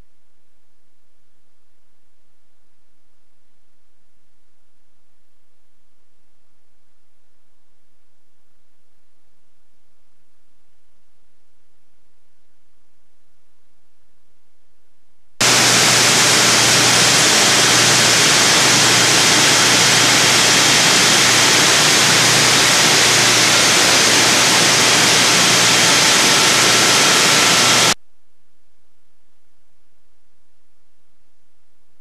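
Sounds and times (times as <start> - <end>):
static hiss: 15.4 - 28.0.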